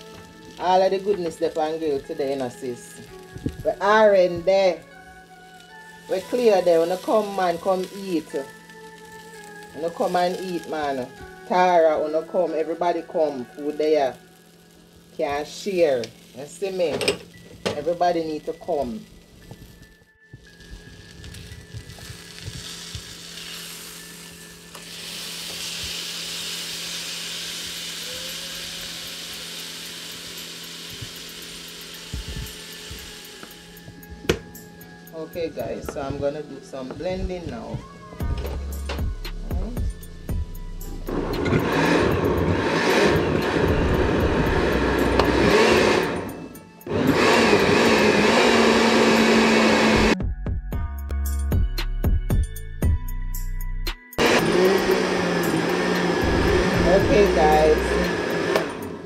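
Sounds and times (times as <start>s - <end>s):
fish sizzling on a griddle pan: 0.0s - 33.9s
blender running: 21.6s - 34.6s, 40.8s - 50.2s, 54.2s - 59.0s.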